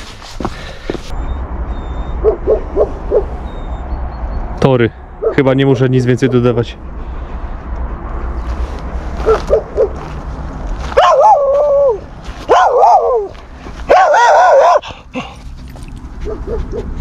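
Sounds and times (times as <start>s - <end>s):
dog whining: 1.1s - 4.4s, 11.0s - 15.4s, 16.0s - 17.0s
dog yipping: 1.1s - 4.4s, 9.2s - 10.1s, 10.9s - 14.9s, 15.7s - 17.0s.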